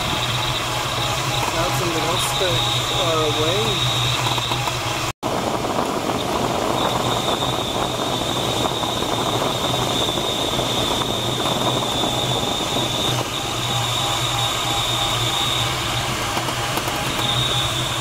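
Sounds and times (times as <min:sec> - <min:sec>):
thin high tone: 0:00.0 - 0:04.6
steady low hum: 0:00.0 - 0:16.4
rush of airflow in cockpit: 0:00.0 - 0:18.0.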